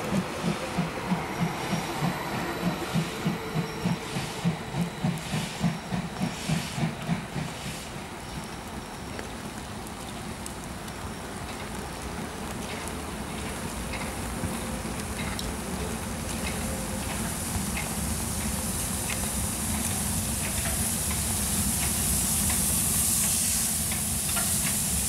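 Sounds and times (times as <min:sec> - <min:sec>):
steam locomotive chuffing: 0:00.0 - 0:08.1, 0:15.2 - 0:25.0
steady steam hiss: 0:00.0 - 0:25.0.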